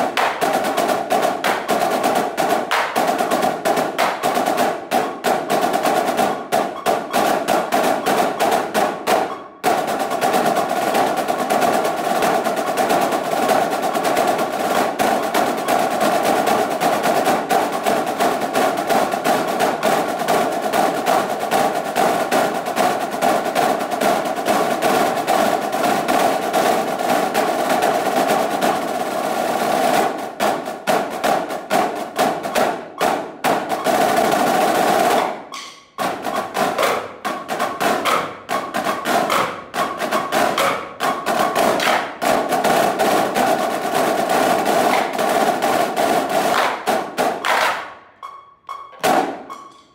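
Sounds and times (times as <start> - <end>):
snare drumline playing: 0.0 - 49.9.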